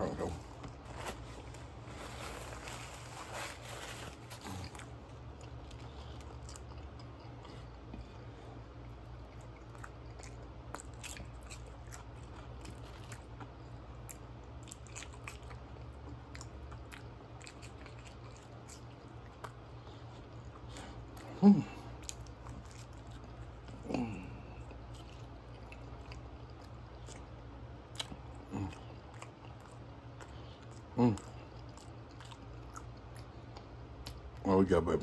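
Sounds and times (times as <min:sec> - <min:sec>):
crunchy chewing: 0:00.0 - 0:34.4
steady low hum: 0:00.0 - 0:35.0.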